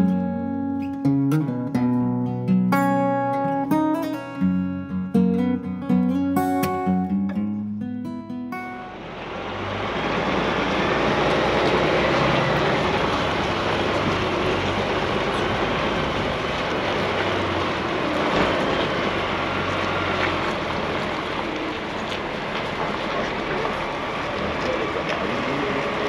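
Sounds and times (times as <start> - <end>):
tyre and road noise: 0.0 - 26.0
truck diesel engine running: 8.6 - 26.0.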